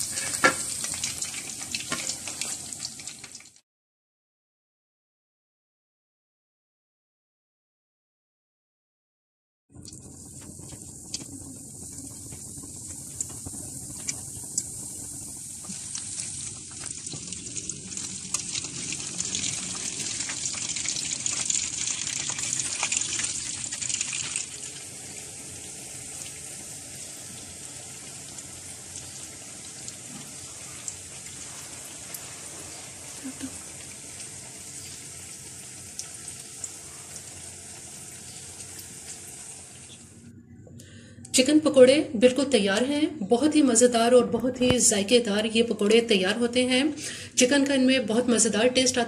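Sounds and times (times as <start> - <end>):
crackles and pops: 9.7 - 24.8.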